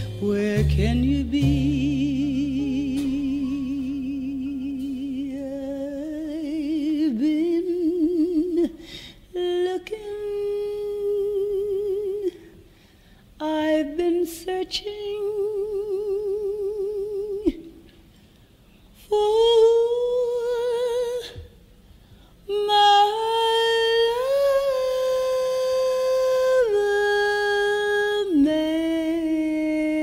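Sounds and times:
woman singing jazz ballad: 0.0s - 12.5s, 13.4s - 17.7s, 19.0s - 21.5s, 22.4s - 30.0s.

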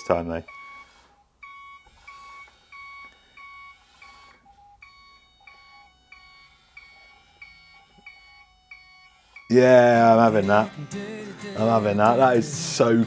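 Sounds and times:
faint electronic reversing beeps: 0.4s - 10.2s.

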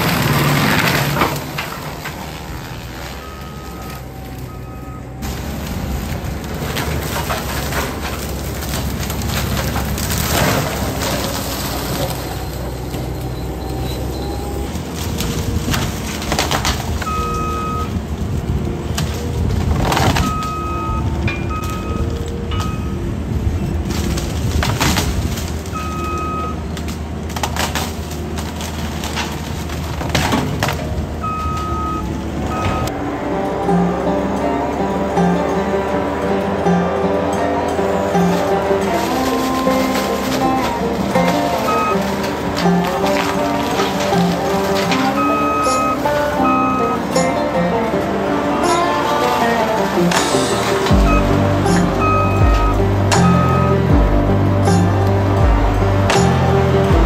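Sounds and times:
diesel engine under load: 0.0s - 57.0s
mulcher grinding brush: 0.0s - 57.0s
wood crackling and splintering: 0.0s - 57.0s
long beeps: 3.2s - 5.2s, 12.3s - 14.7s, 31.2s - 32.9s, 45.2s - 47.0s, 50.9s - 53.8s.

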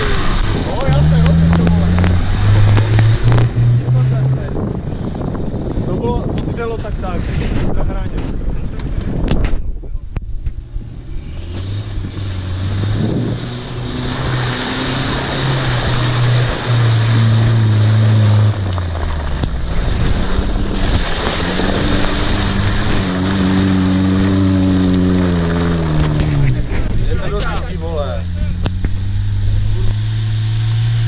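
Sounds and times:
engines revving: 0.0s - 7.2s, 10.6s - 31.0s
tyres spinning in mud: 12.0s - 27.1s.

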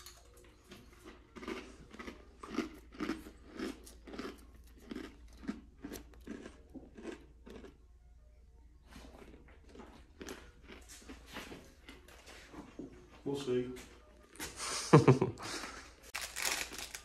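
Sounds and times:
person chewing crunchy cookie: 0.2s - 12.1s, 16.1s - 17.0s.

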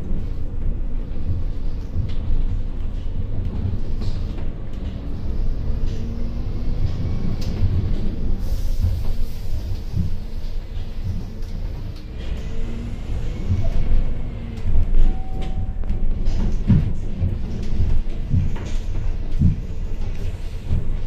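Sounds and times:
bus engine and road rumble: 0.0s - 21.0s
bodywork rattles and knocks: 15.7s - 21.0s.

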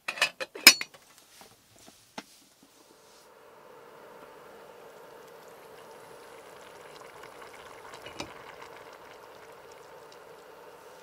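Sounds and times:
food hissing and crackling: 2.6s - 11.0s.

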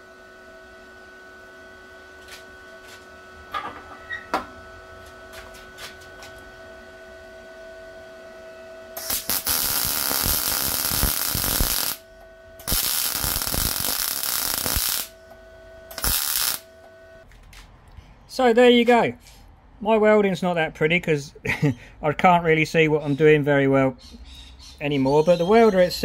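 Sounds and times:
welder hum: 0.0s - 17.3s
welding arc crackling: 9.0s - 15.3s, 15.9s - 16.9s.

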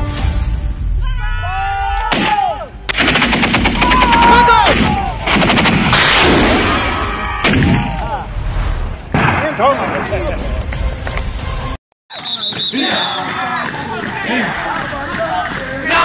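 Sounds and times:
automatic weapons fire: 2.9s - 4.4s.

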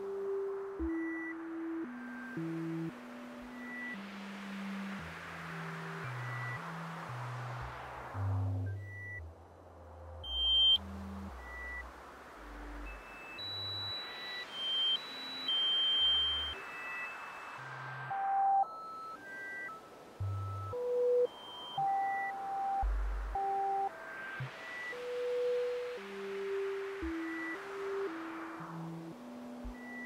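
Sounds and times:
electronic hiss: 0.0s - 9.2s, 10.3s - 30.0s
electronic sine beeps: 10.2s - 30.0s.

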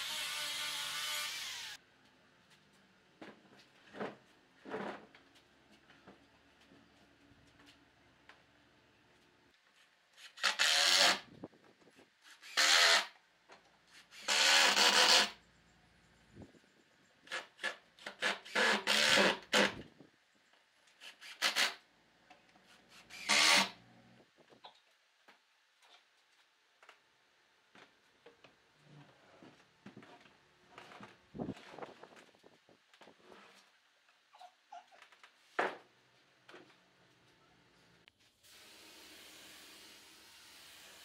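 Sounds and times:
cordless drill driving screws: 0.0s - 1.8s, 23.1s - 23.7s.

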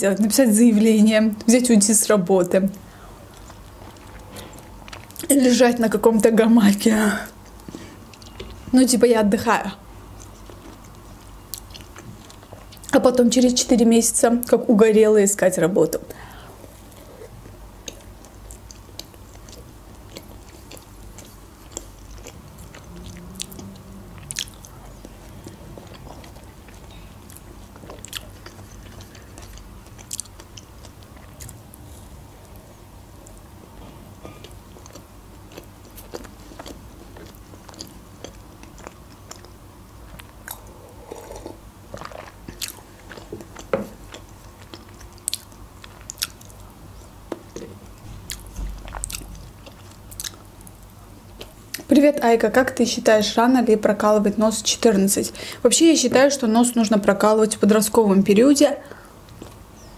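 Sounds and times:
person chewing pastry: 2.9s - 5.3s, 7.3s - 8.7s, 10.0s - 13.0s, 16.2s - 51.9s, 59.1s - 59.9s
mouth clicks and crunches: 3.3s - 5.3s, 10.1s - 13.0s, 16.8s - 51.9s, 59.2s - 59.9s.

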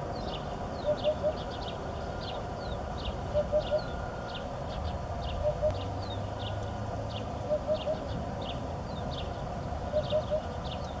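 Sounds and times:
small birds chirping: 0.0s - 11.0s
hoopoe hooting: 3.3s - 4.3s, 7.4s - 8.1s.

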